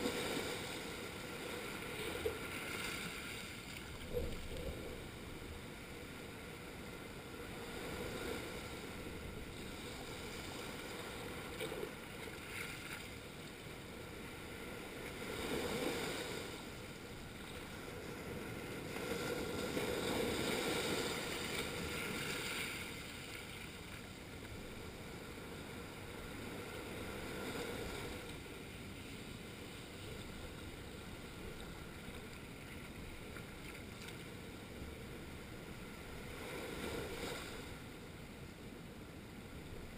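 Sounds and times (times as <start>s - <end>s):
waves washing over rock: 0.0s - 6.0s, 17.9s - 23.3s.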